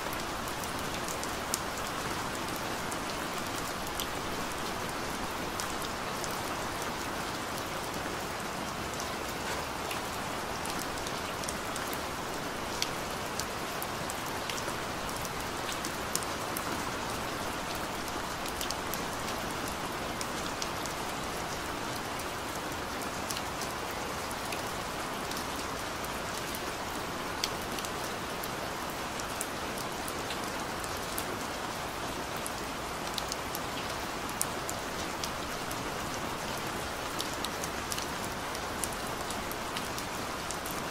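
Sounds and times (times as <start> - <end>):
steady rain: 0.0 - 40.9.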